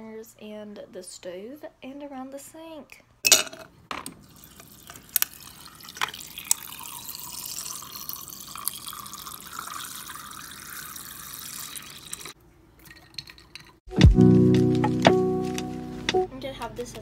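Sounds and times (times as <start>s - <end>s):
water stream into glass jar: 4.2s - 13.8s.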